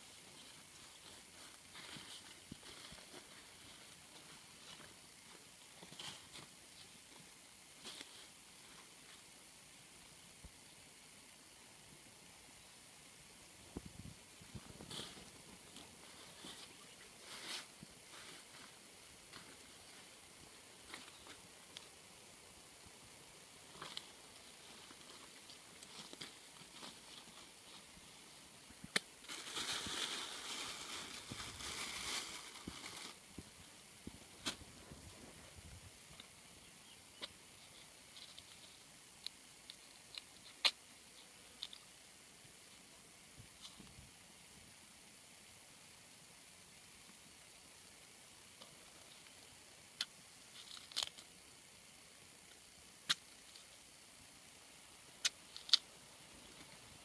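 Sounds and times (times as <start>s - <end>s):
leafy branches rustling: 0.0s - 7.0s, 13.7s - 36.4s
faint steady hiss: 0.0s - 57.0s.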